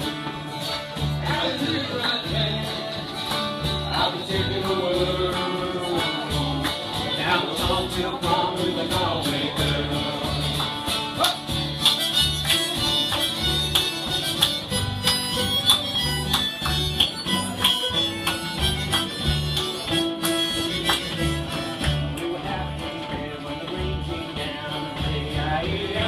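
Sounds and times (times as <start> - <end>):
plucked double bass: 0.0 - 26.0
strummed acoustic guitars: 0.0 - 26.0
harmonica playing tune: 11.6 - 22.1.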